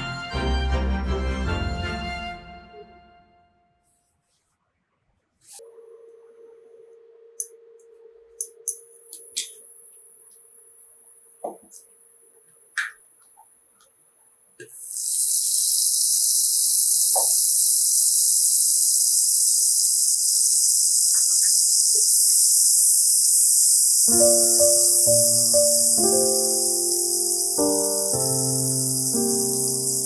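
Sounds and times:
faint hum: 0:04.4 - 0:14.7
butter sizzling in a pot: 0:08.8 - 0:30.0.

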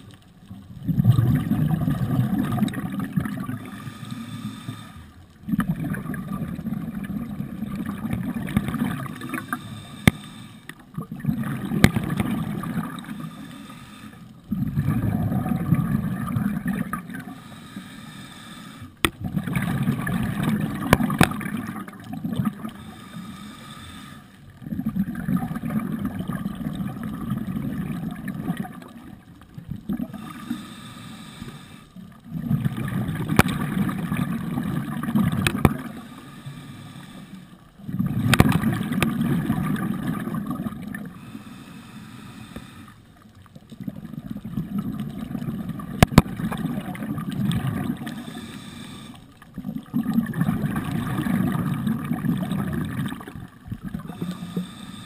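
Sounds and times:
diver exhaling bubbles: 0:00.7 - 0:04.3, 0:05.4 - 0:10.3, 0:10.9 - 0:13.4, 0:14.5 - 0:17.4, 0:19.2 - 0:23.0, 0:24.6 - 0:30.6, 0:32.2 - 0:36.2, 0:37.8 - 0:41.3, 0:43.8 - 0:55.0
diver inhaling: 0:03.6 - 0:05.3, 0:09.0 - 0:10.8, 0:12.9 - 0:14.4, 0:17.2 - 0:19.0, 0:22.7 - 0:24.5, 0:30.1 - 0:32.0, 0:35.8 - 0:37.6, 0:41.0 - 0:43.3, 0:48.1 - 0:49.4, 0:54.0 - 0:55.0.

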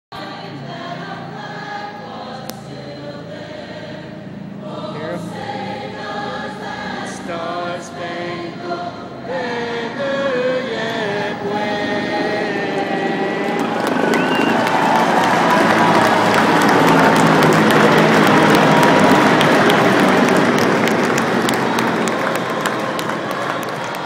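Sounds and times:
anthem sung over loudspeakers: 0:00.1 - 0:24.0.

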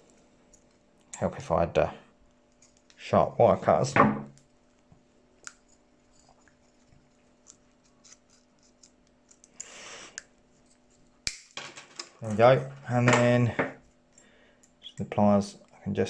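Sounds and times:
wire snapping: 0:11.2 - 0:11.6.

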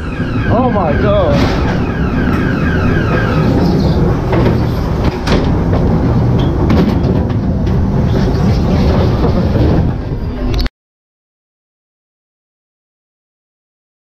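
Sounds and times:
train car wheels rumbling: 0:00.0 - 0:10.7
sharp knocks: 0:01.2 - 0:07.8.

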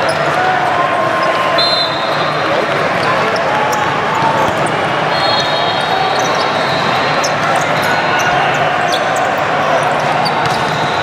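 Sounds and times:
many voices and shouts: 0:00.0 - 0:11.0
shoes squeaking on court: 0:01.1 - 0:11.0
volleyballs hit and bouncing: 0:02.3 - 0:05.0, 0:09.0 - 0:11.0.

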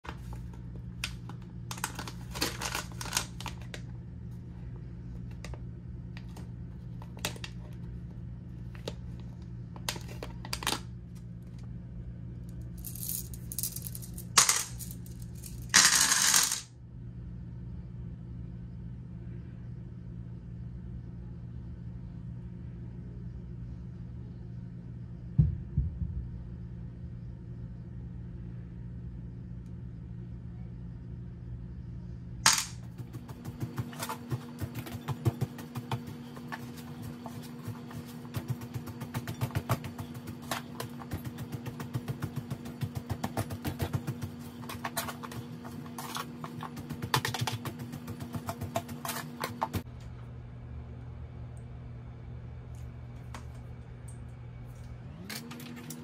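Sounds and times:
steady low hum: 0:00.0 - 0:56.0
foil pouch crinkling: 0:01.2 - 0:03.8.

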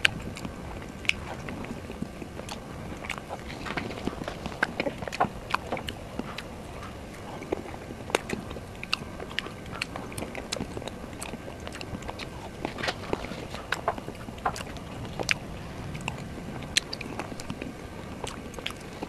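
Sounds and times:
person chewing with lip smacks: 0:00.0 - 0:19.0.

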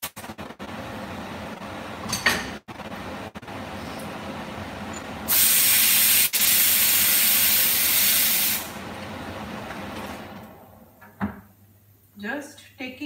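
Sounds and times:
pressure cooker steam hiss: 0:05.3 - 0:08.7.

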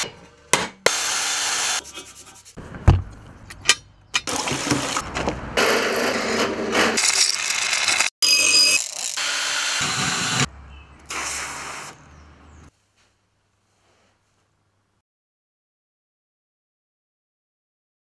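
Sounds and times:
grinder cutting metal: 0:05.6 - 0:10.5.

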